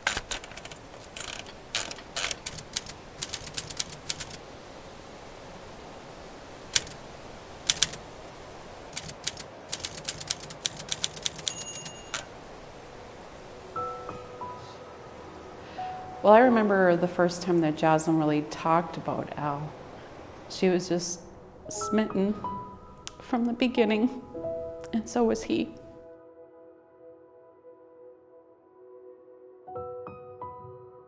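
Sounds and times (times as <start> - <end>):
typewriter keys clacking: 0.0 - 4.4, 6.8 - 7.0, 7.7 - 8.0, 8.9 - 12.3
steady hiss: 0.0 - 25.9
typewriter bell dinging: 9.0 - 12.3.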